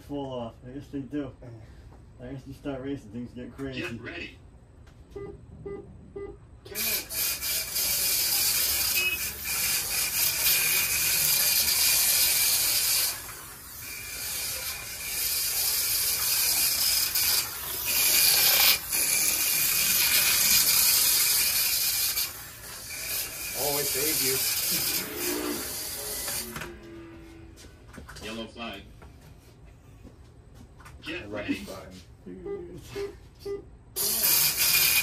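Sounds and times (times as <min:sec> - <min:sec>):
slot cars buzzing: 0:06.7 - 0:27.6.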